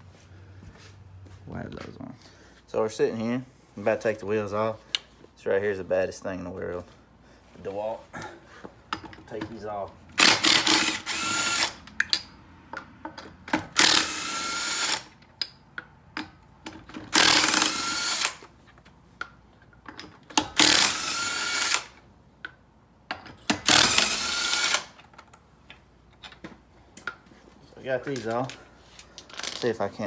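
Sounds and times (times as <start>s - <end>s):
nuts and tool clattering: 27.8s - 30.0s.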